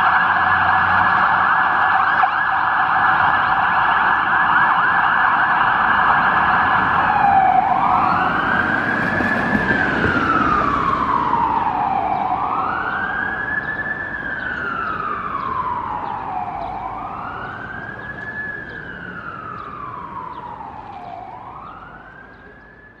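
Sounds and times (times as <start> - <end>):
truck engine noise: 0.0 - 22.8
fire truck siren yelping and wailing: 0.0 - 23.0.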